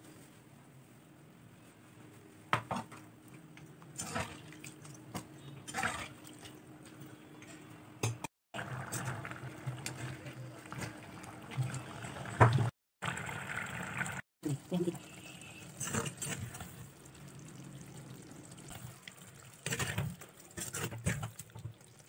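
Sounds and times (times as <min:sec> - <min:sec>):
gravy bubbling: 0:08.6 - 0:22.0
spatula scraping a pot: 0:19.6 - 0:21.3.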